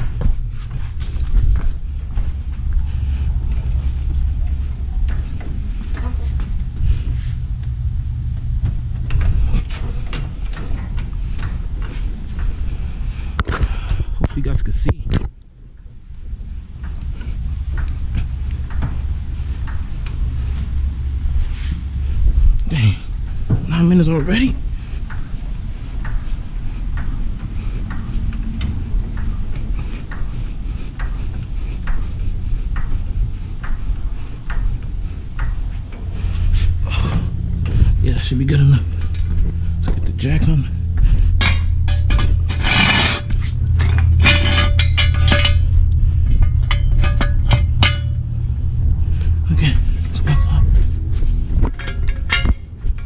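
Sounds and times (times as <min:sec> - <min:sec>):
steady low rumble: 0:00.0 - 0:53.0
floor jack pumping clicks: 0:24.8 - 0:37.9.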